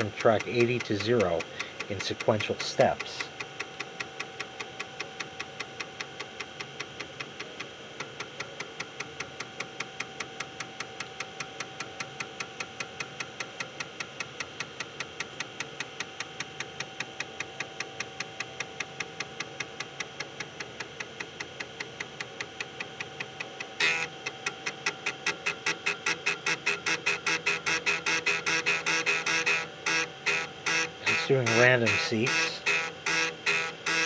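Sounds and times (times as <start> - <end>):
steady hum: 0.0 - 34.0
floppy drive head clicking: 0.3 - 4.9.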